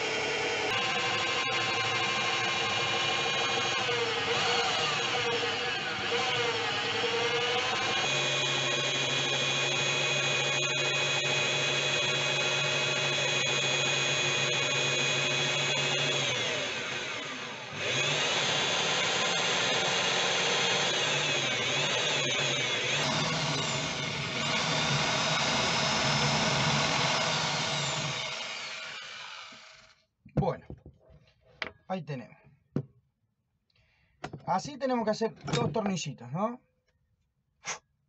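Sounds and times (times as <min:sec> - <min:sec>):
electric drill running: 0:00.0 - 0:30.0.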